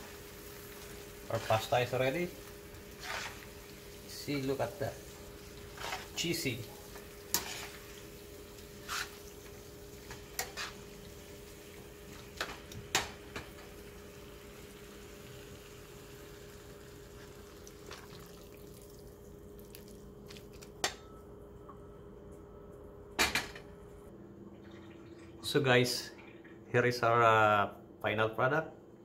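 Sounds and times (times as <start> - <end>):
steady hiss with hum: 0.0 - 20.8.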